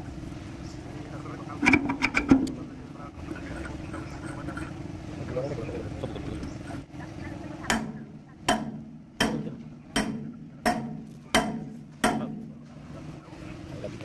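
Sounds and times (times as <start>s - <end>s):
hammer striking metal: 7.7s - 12.6s.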